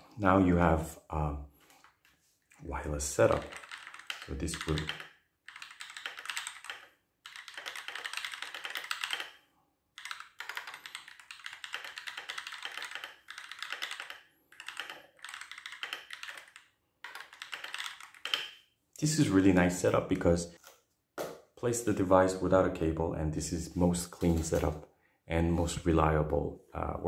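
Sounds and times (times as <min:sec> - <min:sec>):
mechanical keyboard typing: 0:03.2 - 0:09.4, 0:10.0 - 0:18.6.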